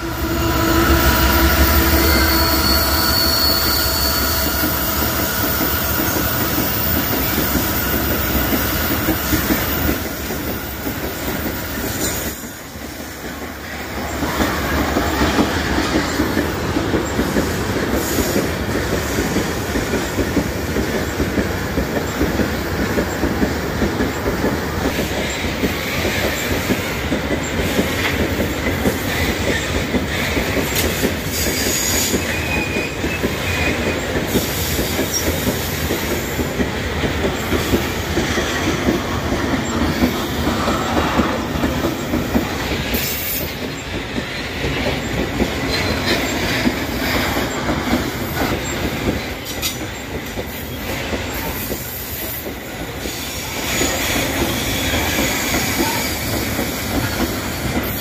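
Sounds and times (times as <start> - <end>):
high wheel squeal: 0.0 - 10.8, 30.7 - 35.8
freight train wheels rumbling: 0.0 - 58.0.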